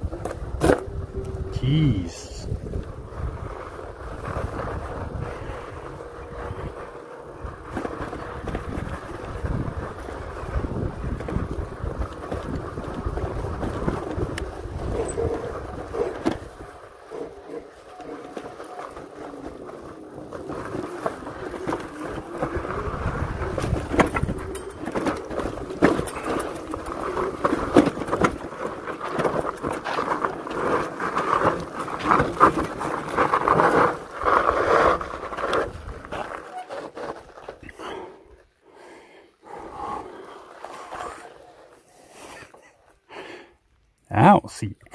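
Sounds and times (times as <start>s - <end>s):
wind rumbling on microphone: 0.0s - 16.8s, 22.1s - 28.3s
faint motor whine: 2.4s - 31.8s
tyres crunching over gravel: 2.5s - 37.9s
bike rattling with clicks: 7.2s - 37.2s.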